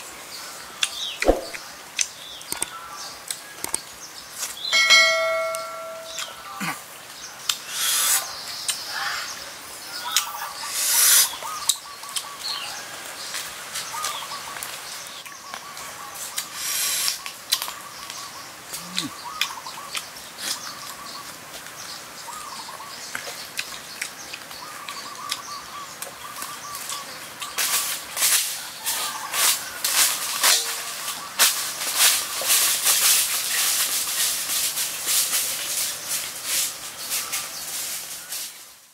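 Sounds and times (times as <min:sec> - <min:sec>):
thin bird calls: 0:00.8 - 0:01.6, 0:09.9 - 0:12.8, 0:28.8 - 0:31.5
dry leaves crunching: 0:27.6 - 0:38.8.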